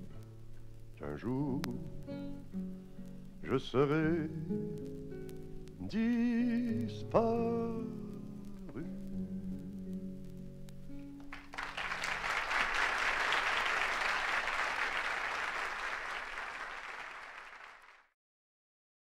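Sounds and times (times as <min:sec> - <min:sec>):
guitar and keyboard: 0:00.0 - 0:12.4
audience applause: 0:11.2 - 0:18.1.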